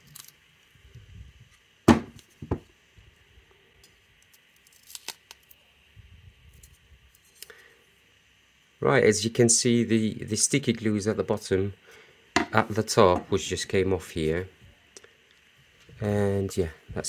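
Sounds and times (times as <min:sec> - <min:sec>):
adhesive strip tearing: 0:04.6 - 0:05.5.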